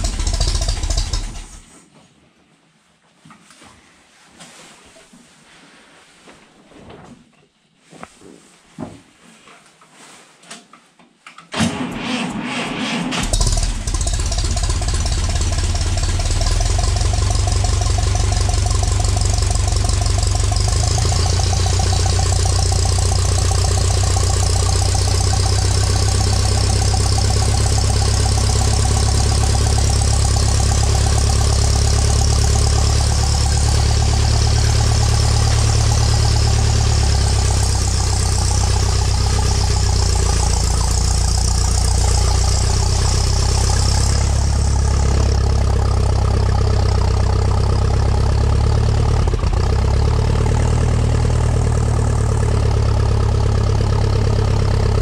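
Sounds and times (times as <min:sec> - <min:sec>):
starter motor cranking: 0:00.0 - 0:01.6, 0:11.6 - 0:34.4
tractor engine idling: 0:00.0 - 0:01.6, 0:13.2 - 0:55.0.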